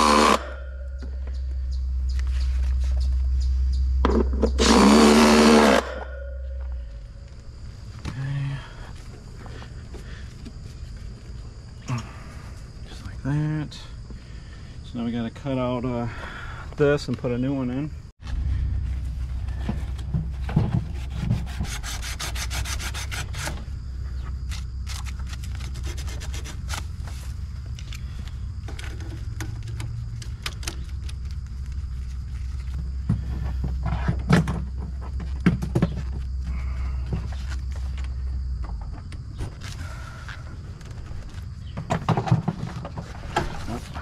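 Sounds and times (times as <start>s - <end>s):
tubing cutter scraping pipe: 0.0s - 1.0s, 4.1s - 6.6s, 20.4s - 23.7s
low hum: 0.0s - 14.8s, 17.9s - 35.4s.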